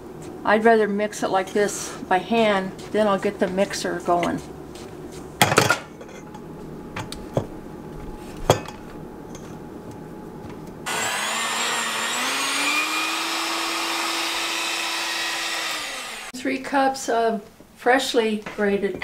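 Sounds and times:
electric hand mixer whining: 0:10.9 - 0:16.3.

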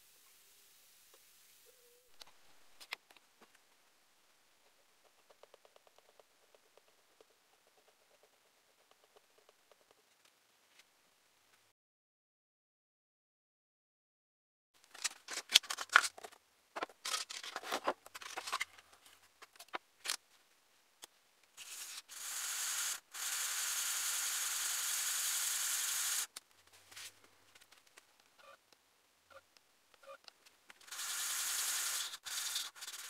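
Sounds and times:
resin sanding on sandpaper: 0:30.9 - 0:33.0.

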